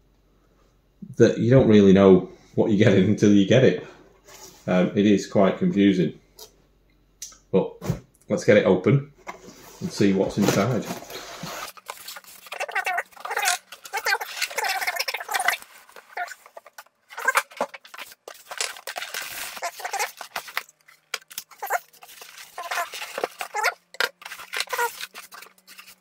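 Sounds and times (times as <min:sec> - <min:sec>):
foam scraping against cardboard: 0:09.4 - 0:26.0.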